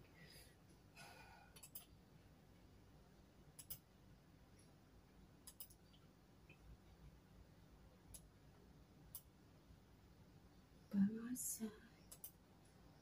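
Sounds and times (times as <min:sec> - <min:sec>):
computer clicks: 0:01.5 - 0:02.0, 0:03.6 - 0:03.9, 0:05.4 - 0:06.0, 0:09.1 - 0:09.3, 0:12.0 - 0:12.4.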